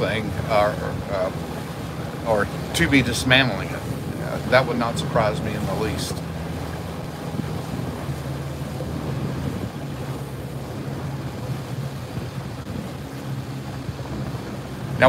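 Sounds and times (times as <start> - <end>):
boat engine humming: 0.0 - 15.0
water slapping hull: 0.0 - 15.0
wind on microphone: 0.0 - 15.0.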